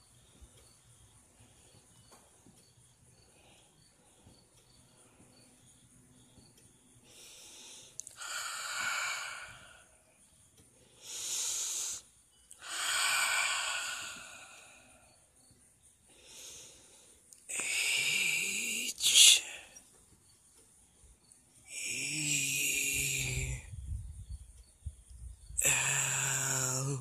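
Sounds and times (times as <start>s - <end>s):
person wheezing hisses: 7.2s - 9.8s, 11.0s - 15.0s, 17.5s - 19.7s, 21.7s - 23.6s, 25.6s - 27.0s
soft chirp: 12.0s - 12.6s.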